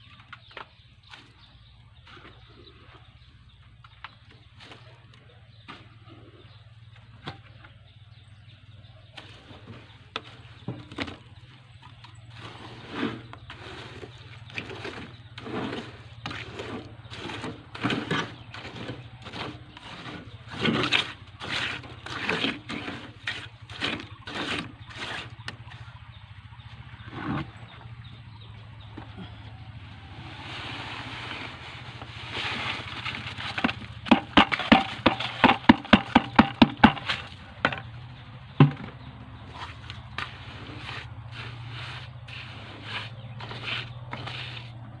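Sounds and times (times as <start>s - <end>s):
trowel scraping wet concrete: 12.0s - 25.8s, 30.2s - 37.8s, 38.6s - 45.0s.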